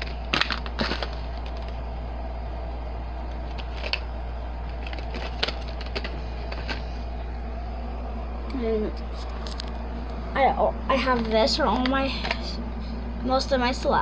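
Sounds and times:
plastic packaging rustling: 0:00.0 - 0:01.8, 0:03.3 - 0:07.2
steady low hum: 0:00.0 - 0:14.0.

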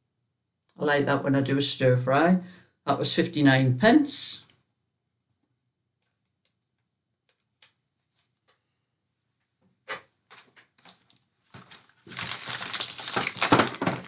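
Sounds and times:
shopping bag rustling: 0:10.9 - 0:14.0.

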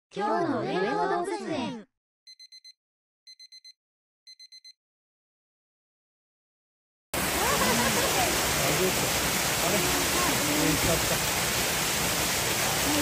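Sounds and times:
short electronic beeps: 0:02.3 - 0:04.8
water rushing: 0:07.2 - 0:13.0.

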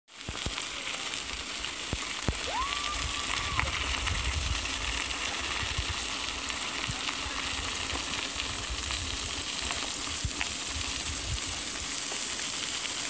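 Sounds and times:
bicycle tyres on gravel: 0:00.1 - 0:13.0
wind rumble on microphone: 0:02.5 - 0:11.9.

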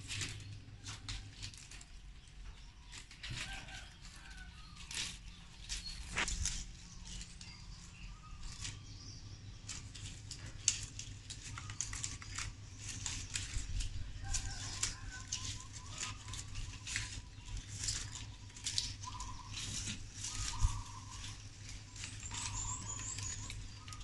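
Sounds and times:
low steady hum: 0:00.0 - 0:24.0
palm leaf rustling: 0:00.0 - 0:24.0.

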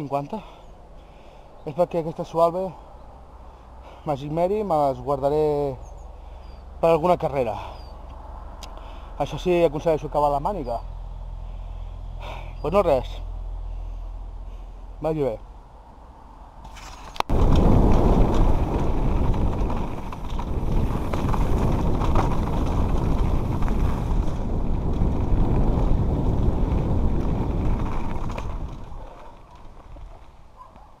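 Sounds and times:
bike and tyre rattle: 0:16.6 - 0:31.0
wind buffeting microphone: 0:17.2 - 0:30.7.

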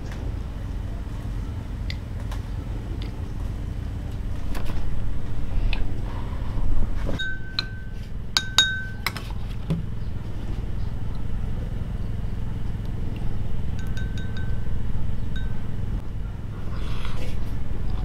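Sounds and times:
steady low hum: 0:00.0 - 0:18.0
light ringing clinks: 0:07.2 - 0:09.3, 0:13.7 - 0:15.9.

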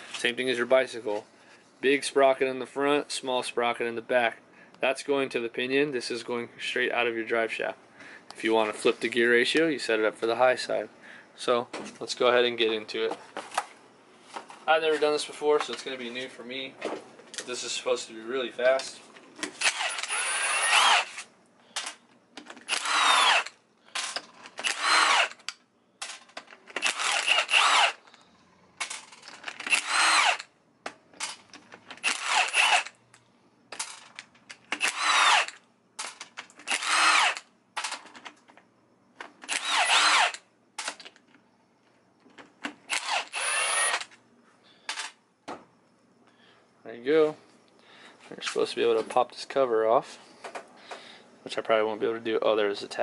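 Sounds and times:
impact driver bursts: 0:19.6 - 0:21.2, 0:22.6 - 0:25.5, 0:26.8 - 0:28.1, 0:29.6 - 0:30.5, 0:32.0 - 0:33.0, 0:34.8 - 0:35.6, 0:36.6 - 0:37.5, 0:39.5 - 0:40.4, 0:42.9 - 0:44.1.

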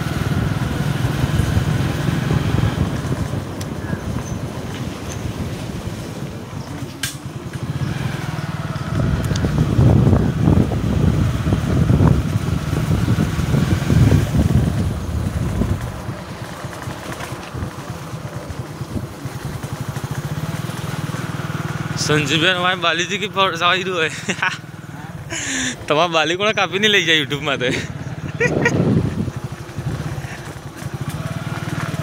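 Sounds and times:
motorcycle engine running: 0:00.0 - 0:32.0.

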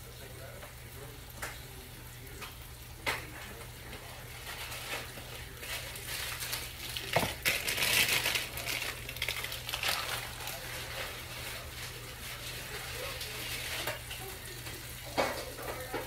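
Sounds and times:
crinkling handling noise: 0:03.2 - 0:16.0.

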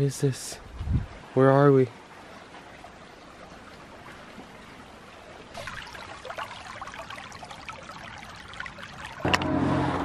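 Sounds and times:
creek trickling over stones: 0:00.0 - 0:09.5.

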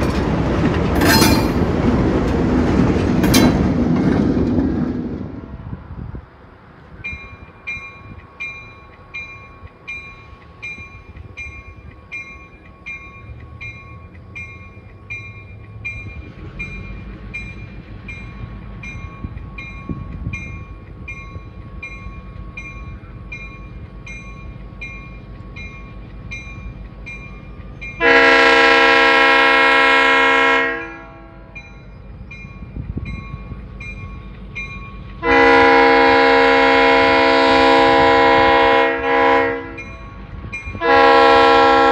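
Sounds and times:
diesel locomotive rumble: 0:00.0 - 0:41.9
crossing bell ringing: 0:01.0 - 0:01.8, 0:07.0 - 0:30.0, 0:30.6 - 0:37.0, 0:39.1 - 0:41.9
train air horn blasts: 0:28.0 - 0:31.5, 0:35.2 - 0:39.8, 0:40.8 - 0:41.9.

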